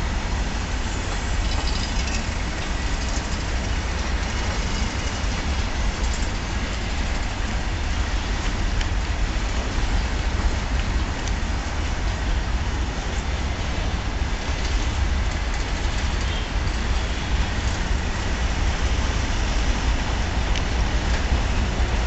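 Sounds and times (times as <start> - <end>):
goods train rumbling on track: 0.0 - 22.0.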